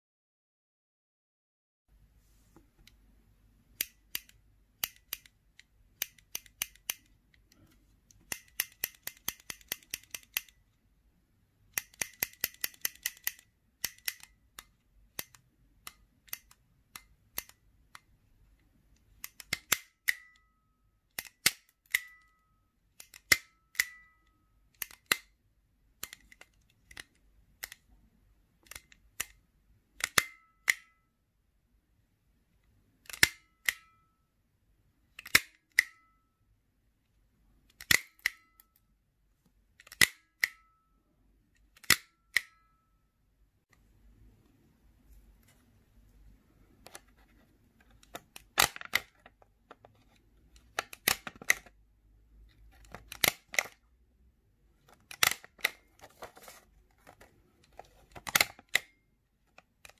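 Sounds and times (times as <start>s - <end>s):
stapler clicking: 54.9s - 55.9s.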